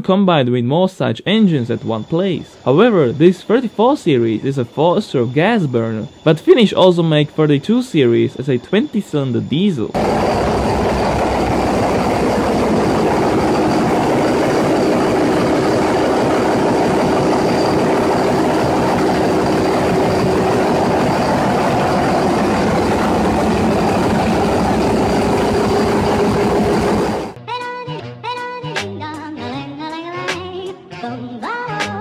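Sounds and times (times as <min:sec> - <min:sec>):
large engine running: 0:09.9 - 0:27.4.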